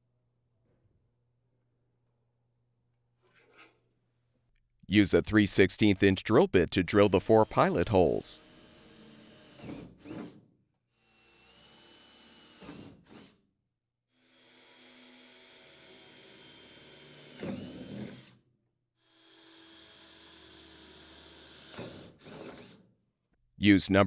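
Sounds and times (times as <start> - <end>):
cordless drill drilling metal: 7.0 - 10.4, 11.0 - 13.4, 14.2 - 18.4, 19.0 - 22.8.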